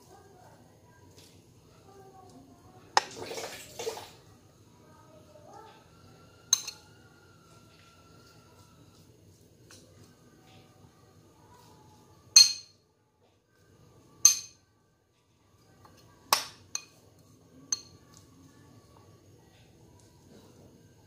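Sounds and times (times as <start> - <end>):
fork clinking on ceramic bowl: 6.5 - 6.8, 12.4 - 12.7.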